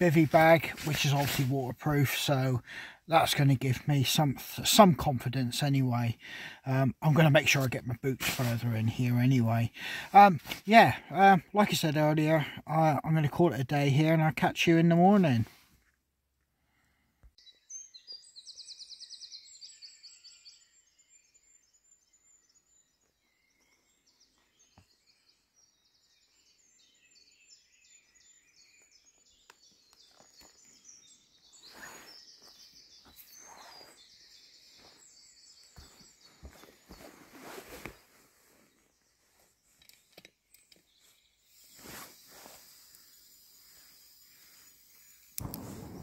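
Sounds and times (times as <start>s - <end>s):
songbirds trilling and twittering: 0.0s - 15.4s, 16.8s - 46.0s
rustling and knocking on forest floor: 35.8s - 43.1s.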